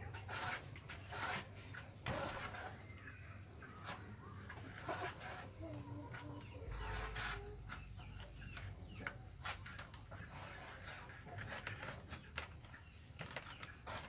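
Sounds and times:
bamboo cages clicking and tapping: 0:00.0 - 0:14.0.

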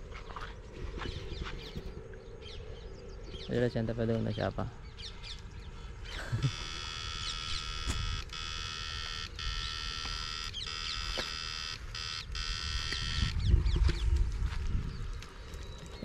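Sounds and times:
electric fishing unit buzz: 0:06.1 - 0:13.4.

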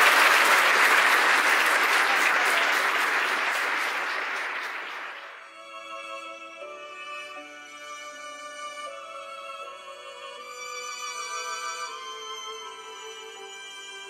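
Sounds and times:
congregation applauding and cheering: 0:00.0 - 0:05.5
slow music with held notes: 0:05.4 - 0:14.0.

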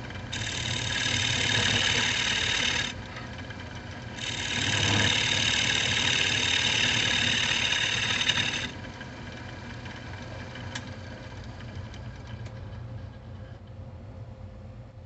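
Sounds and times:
gouge scraping wood on lathe: 0:00.0 - 0:03.0, 0:03.8 - 0:09.1
lathe motor hum: 0:00.0 - 0:13.6.

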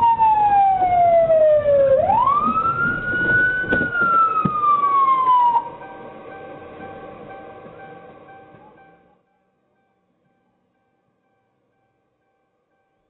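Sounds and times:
police siren wailing: 0:00.0 - 0:07.1.

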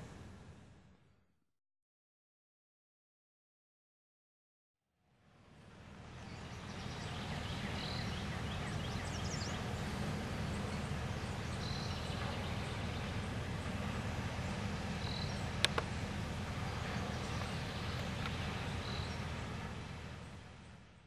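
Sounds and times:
birds chirping: 0:05.8 - 0:21.0.

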